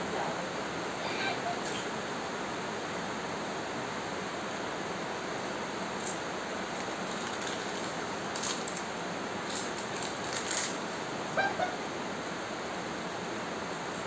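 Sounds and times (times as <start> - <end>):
steady hiss: 0.0 - 14.0
crisp crackles of food eaten: 6.7 - 10.8.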